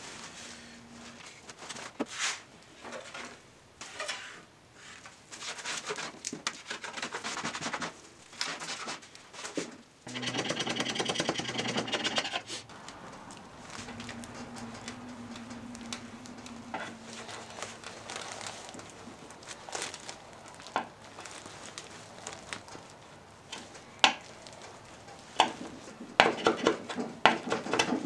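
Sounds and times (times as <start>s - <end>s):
scrapers rasping over glass: 10.1s - 12.7s.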